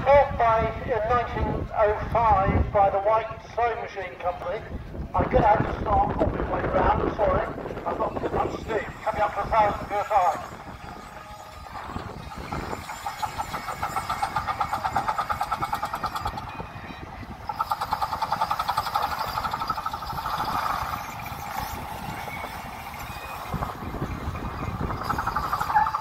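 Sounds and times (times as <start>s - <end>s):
steam engine chuffing: 8.0s - 26.0s.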